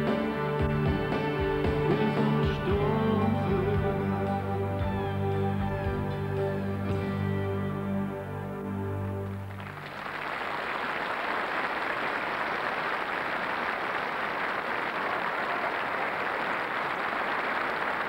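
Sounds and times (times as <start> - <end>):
music chord: 0.0 - 9.8
audience applauding: 8.6 - 18.0.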